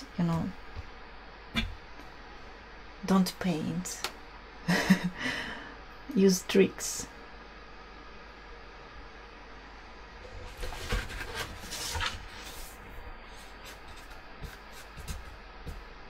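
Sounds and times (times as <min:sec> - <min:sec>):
low steady hum: 0:00.0 - 0:16.0
paper rustling: 0:10.4 - 0:15.3.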